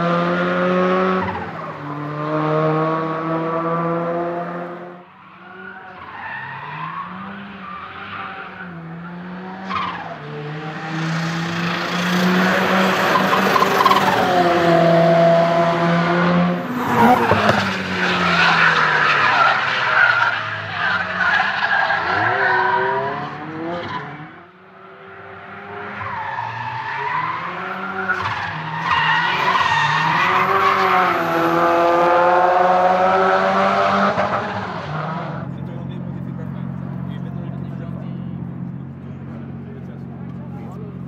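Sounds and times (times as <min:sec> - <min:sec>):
car engine revving: 0:00.0 - 0:05.1, 0:05.9 - 0:41.0
tyres skidding: 0:00.3 - 0:41.0.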